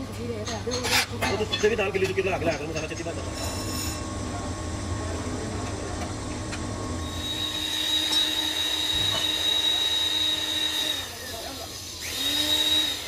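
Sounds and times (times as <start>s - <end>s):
low machine hum: 0.0s - 13.0s
high squealing whine: 6.9s - 11.7s.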